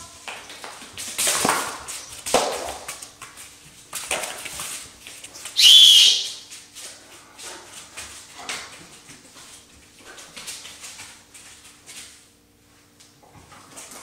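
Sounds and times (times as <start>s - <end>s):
high-pitched whistle blast: 5.6s - 6.4s.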